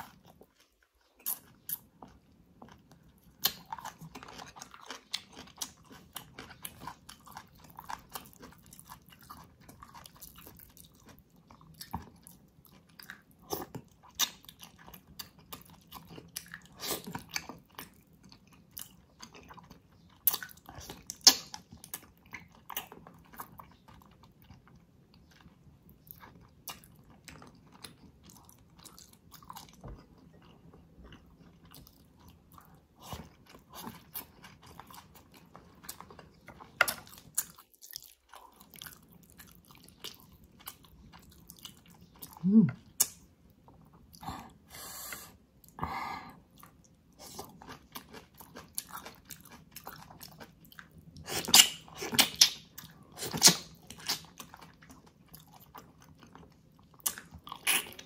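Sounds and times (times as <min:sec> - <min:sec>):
close chewing and biting: 0:00.0 - 0:44.6, 0:46.5 - 0:58.0.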